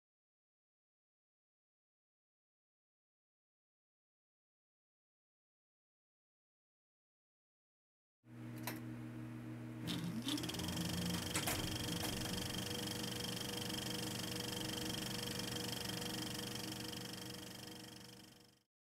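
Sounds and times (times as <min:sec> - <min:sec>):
mechanical hum: 0:08.3 - 0:18.6
short rising whine: 0:09.8 - 0:18.6.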